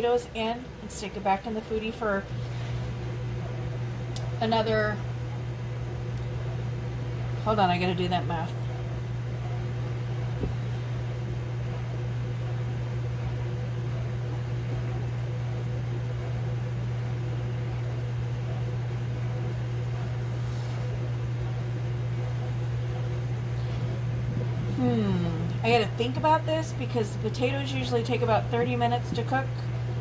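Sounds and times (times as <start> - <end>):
cooker fan humming: 0.0 - 30.0.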